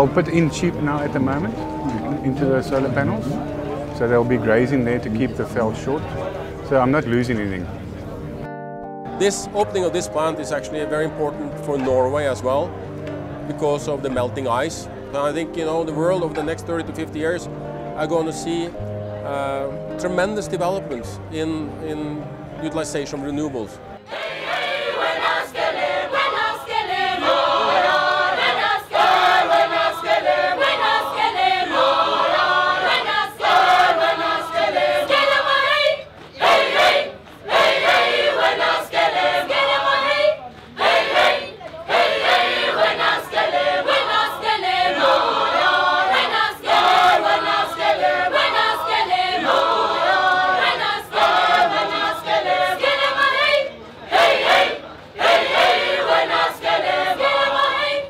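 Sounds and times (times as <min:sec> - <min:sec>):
choir singing: 0:24.0 - 0:58.0.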